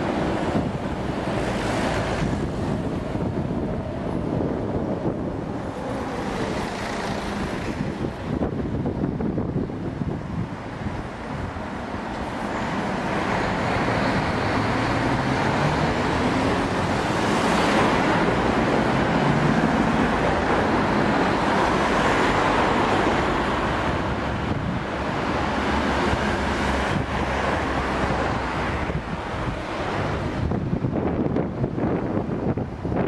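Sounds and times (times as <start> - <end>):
vehicles driving past: 0.0 - 33.0.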